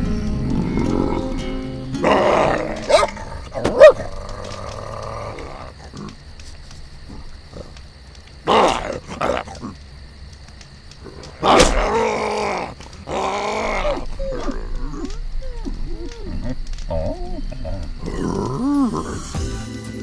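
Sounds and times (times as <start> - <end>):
cartoon bear growling and roaring: 0.4 - 6.2, 8.4 - 9.8, 11.0 - 19.5.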